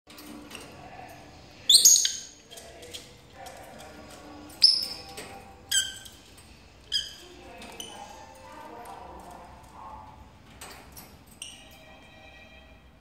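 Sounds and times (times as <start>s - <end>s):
lovebirds shrieking: 1.7s - 2.4s.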